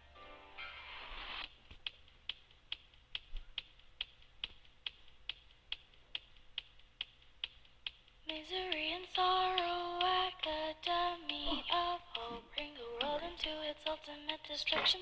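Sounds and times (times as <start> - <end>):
sharp evenly spaced clicks: 1.4 - 15.0
background song: 7.9 - 15.0.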